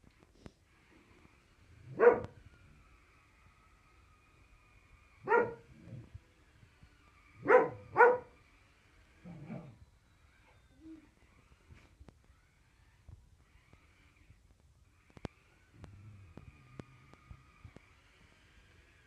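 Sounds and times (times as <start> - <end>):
dog barking: 1.9 - 2.3, 5.2 - 5.6, 7.4 - 8.4.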